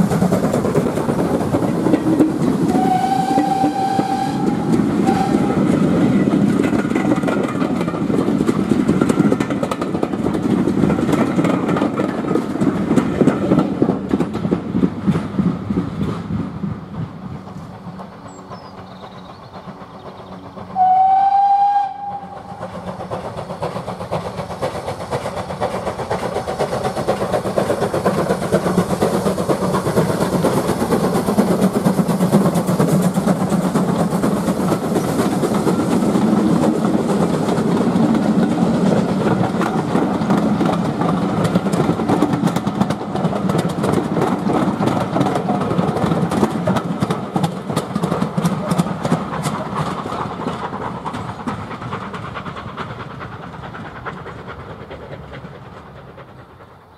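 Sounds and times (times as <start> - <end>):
steam locomotive rumble and hiss: 0.0 - 56.9
train wheels clicking over rail joints: 0.0 - 56.9
steam locomotive whistle: 2.7 - 5.8, 20.8 - 22.6.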